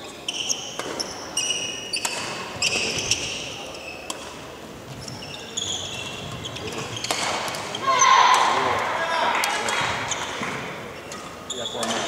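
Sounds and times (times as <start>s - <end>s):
shoes squeaking on wooden floor: 0.0s - 4.1s, 4.9s - 8.2s, 10.1s - 12.0s.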